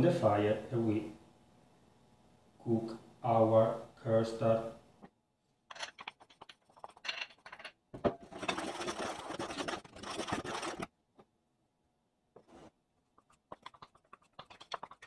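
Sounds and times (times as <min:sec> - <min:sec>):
wooden spoon scraping pan: 0:08.1 - 0:10.9, 0:12.4 - 0:15.0.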